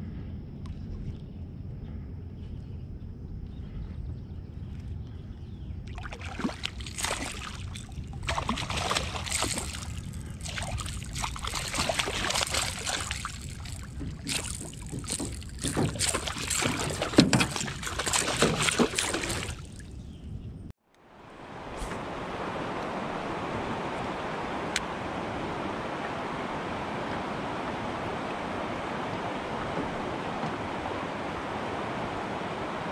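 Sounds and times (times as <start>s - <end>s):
fish splashing at water surface: 5.9s - 19.8s.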